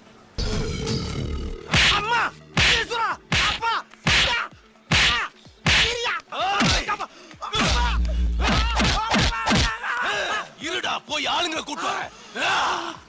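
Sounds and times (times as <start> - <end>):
slaps: 1.7 - 6.9, 7.6 - 10.0.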